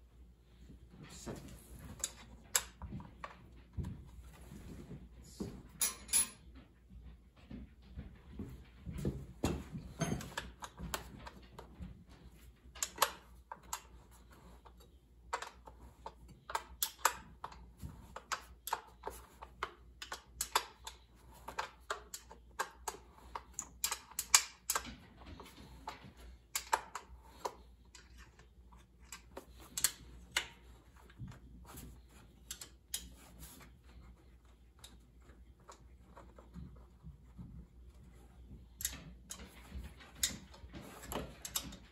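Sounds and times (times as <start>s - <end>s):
hand tools clicking on metal fasteners: 14.7s - 33.7s.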